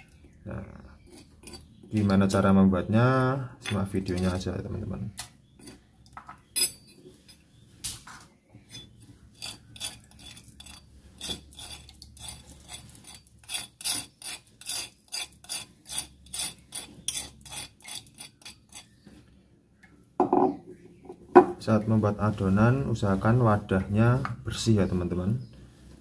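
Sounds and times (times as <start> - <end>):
metal spoon scraping stone mortar: 0.9 - 7.5, 8.6 - 19.1.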